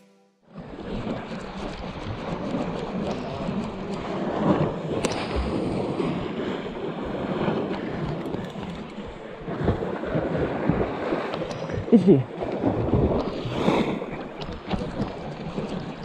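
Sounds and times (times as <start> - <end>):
sea waves washing against rocks: 0.5 - 16.0
wind buffeting microphone: 0.6 - 16.0.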